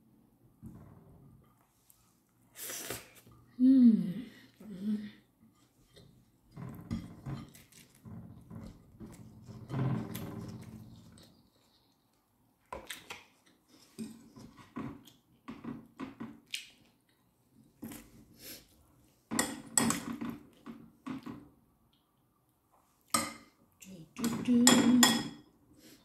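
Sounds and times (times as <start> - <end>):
clinks against ceramic plate: 24.2 - 25.4.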